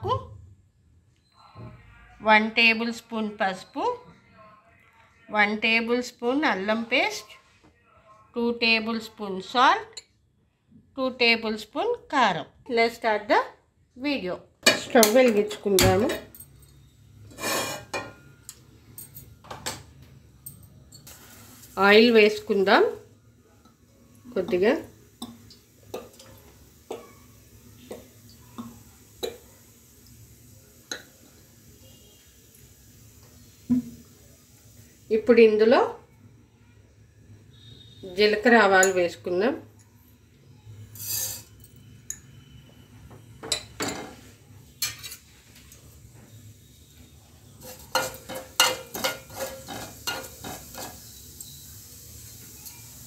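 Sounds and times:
seeds sizzling in oil: 17.2 - 18.6, 21.0 - 39.0, 39.7 - 42.8, 44.2 - 53.0
metal spoon scraping pot: 17.3 - 18.2, 40.9 - 41.6, 44.8 - 45.3, 47.6 - 51.0.

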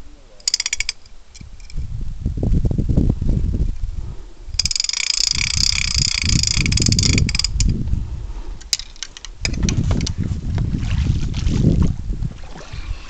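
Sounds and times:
mechanical ratcheting clatter: 0.4 - 1.8, 4.5 - 7.7
handling rumbling and knocks: 8.6 - 12.0.

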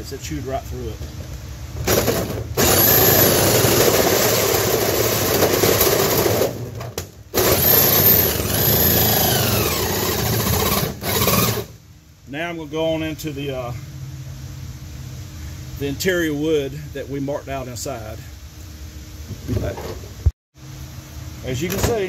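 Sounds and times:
drill with hole saw cutting: 1.9 - 6.6, 7.4 - 11.7.

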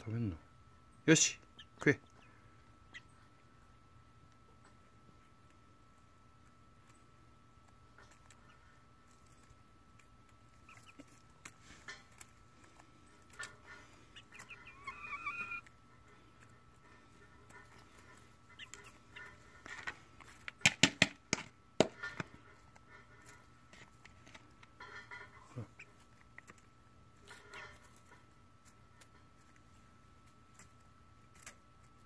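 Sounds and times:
hen clucking: 1.1 - 3.7, 7.8 - 20.0, 24.6 - 28.3.

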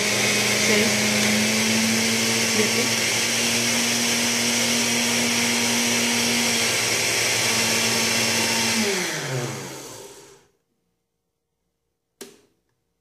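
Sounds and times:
blender motor whine: 0.0 - 10.5.

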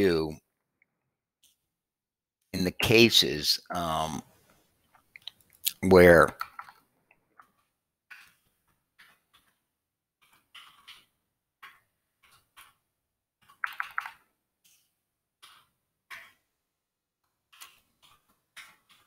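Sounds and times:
computer keyboard typing: 6.3 - 6.8, 10.2 - 12.8, 13.4 - 16.4.

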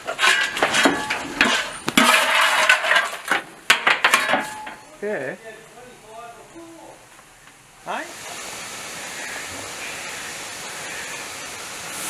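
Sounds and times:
shovel scraping coal: 0.0 - 4.7.

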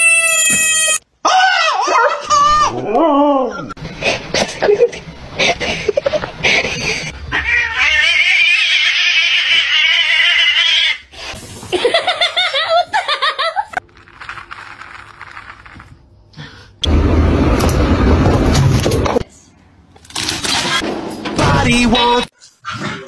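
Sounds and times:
animal yowling cry: 7.3 - 11.0.

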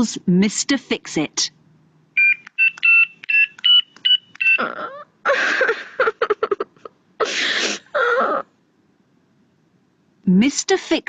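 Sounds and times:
telephone keypad beeps: 2.2 - 4.6.

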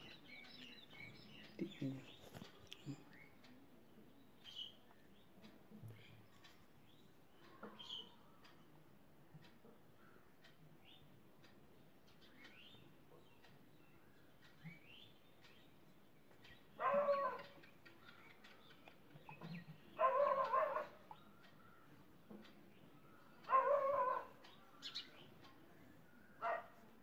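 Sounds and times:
faint bird chirps: 0.0 - 8.8, 9.8 - 27.0
drawn-out animal calls: 16.8 - 18.6, 19.2 - 22.0, 23.4 - 25.0.

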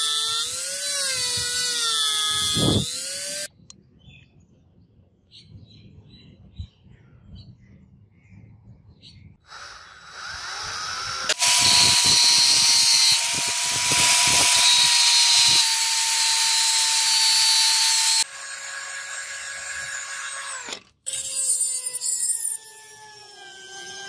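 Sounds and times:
angle grinder grinding metal: 0.0 - 3.5, 9.5 - 24.0
cordless drill whine: 0.0 - 3.5, 9.5 - 24.0.

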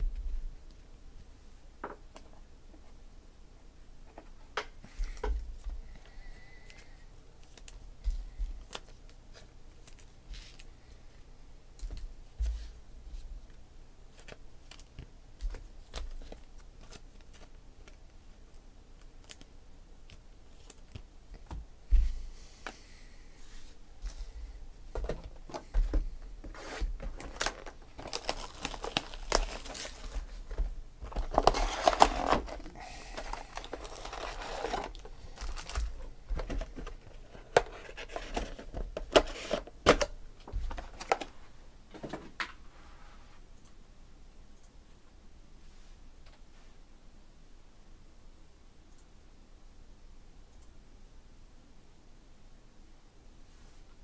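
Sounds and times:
card pack wrapper torn and crinkled: 27.1 - 30.3, 31.1 - 36.0.

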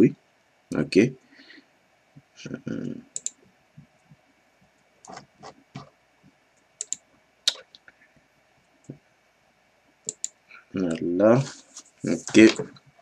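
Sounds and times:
mouse and keyboard clicks: 3.2 - 3.4, 6.8 - 7.7, 10.1 - 10.4.

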